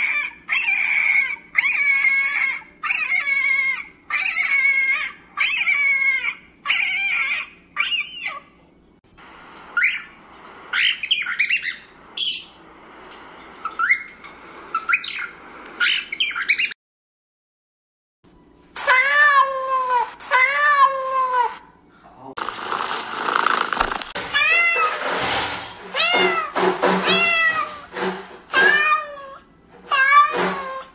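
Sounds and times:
parrots squawking and chirping: 0:00.0 - 0:08.5, 0:09.7 - 0:12.6, 0:13.6 - 0:16.8.

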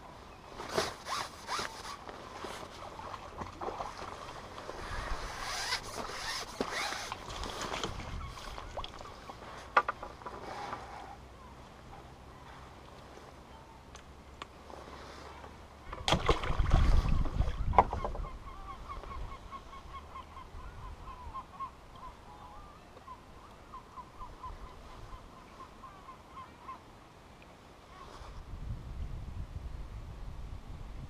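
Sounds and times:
rustling and knocking of gear: 0:09.4 - 0:11.0.

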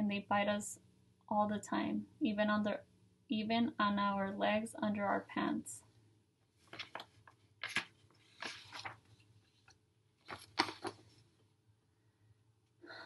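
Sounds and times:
paper pages rustling: 0:06.5 - 0:11.3.

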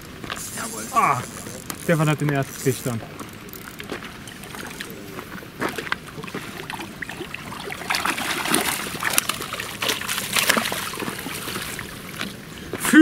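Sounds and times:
fish splashing in water: 0:03.7 - 0:12.4.

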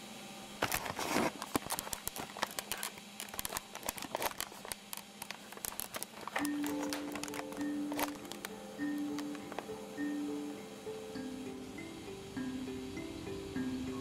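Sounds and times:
clicking and crackling: 0:00.6 - 0:09.8
held music notes: 0:06.4 - 0:14.0.

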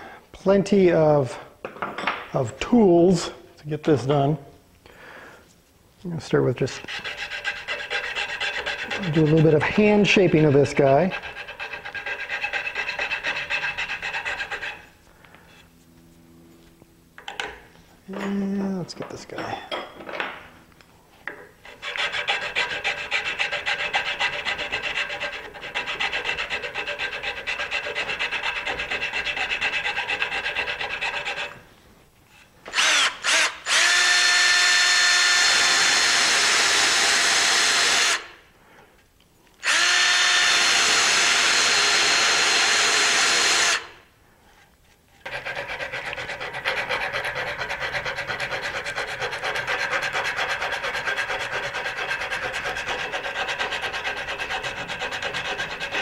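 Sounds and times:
hand scraping wood: 0:06.6 - 0:16.2, 0:44.5 - 0:56.0
drill sanding drum on wood: 0:06.8 - 0:14.8, 0:39.6 - 0:43.8.

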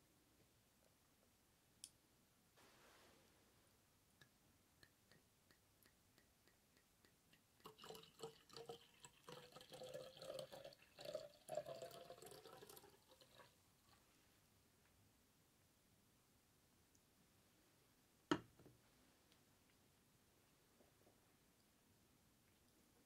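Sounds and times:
liquid glugging from glass bottle: 0:07.6 - 0:13.5.

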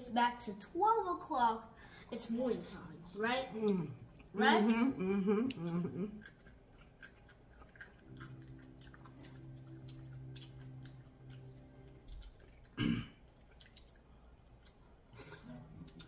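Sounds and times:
steady low hum: 0:00.0 - 0:16.0
crab shells clicking and crackling: 0:06.2 - 0:14.8.

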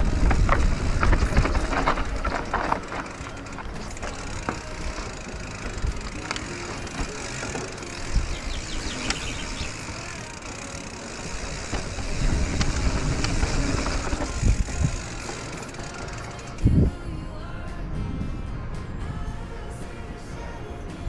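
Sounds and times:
bike clacking: 0:00.0 - 0:16.8
bike tyres rumbling over dirt: 0:00.0 - 0:16.8.

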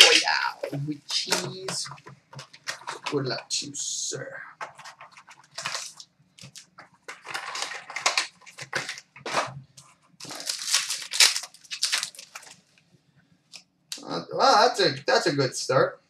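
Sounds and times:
cardboard and wrapper ripping: 0:04.6 - 0:09.6, 0:10.2 - 0:12.6.

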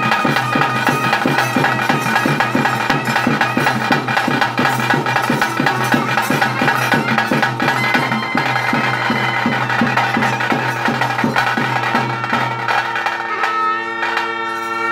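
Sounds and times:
drums struck in a steady beat: 0:00.0 - 0:14.9
piping wind instrument: 0:00.0 - 0:14.9.

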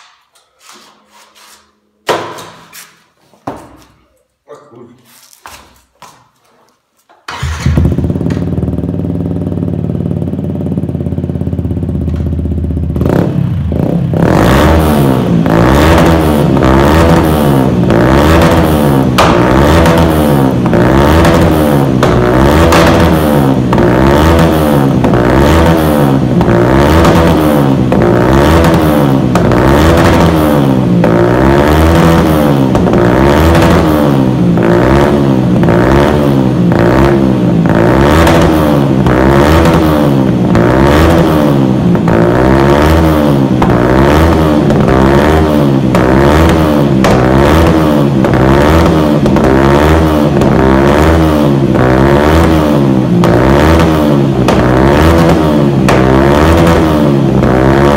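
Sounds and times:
motorcycle engine revving: 0:07.3 - 0:57.9.

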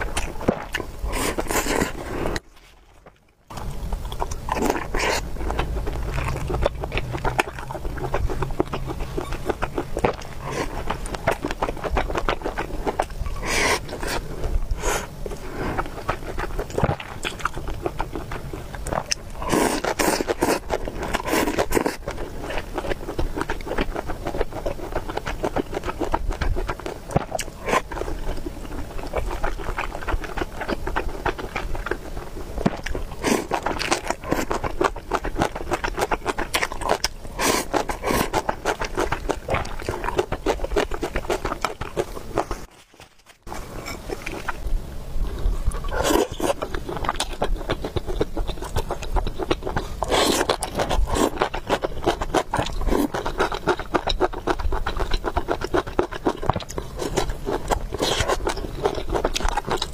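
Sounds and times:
person chewing food: 0:00.0 - 0:44.6, 0:45.2 - 0:59.9.

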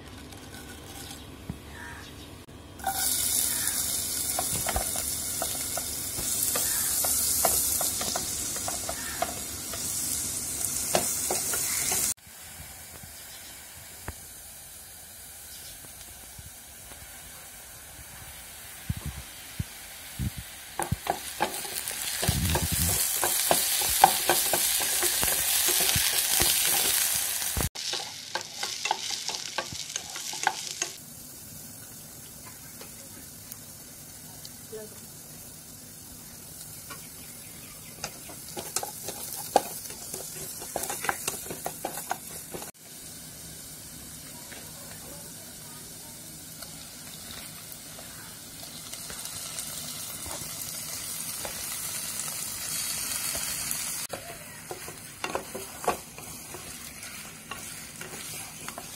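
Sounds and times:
onions sizzling in hot oil: 0:02.8 - 0:58.9
stirring knocks and scrapes: 0:20.8 - 0:27.2, 0:38.0 - 0:42.8, 0:54.1 - 0:58.9.

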